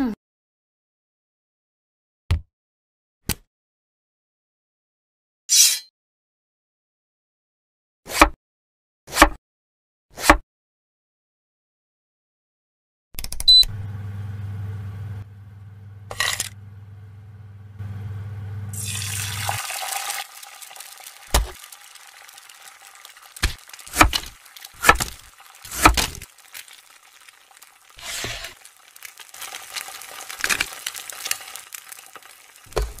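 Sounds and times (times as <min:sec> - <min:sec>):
cleaver chopping on wooden board: 0:24.0 - 0:25.2, 0:25.8 - 0:26.2.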